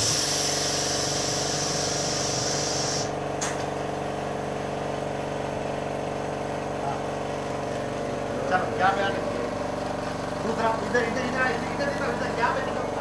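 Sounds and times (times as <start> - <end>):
compressed air hissing: 0.0 - 3.2
steady machine hum: 0.0 - 13.0.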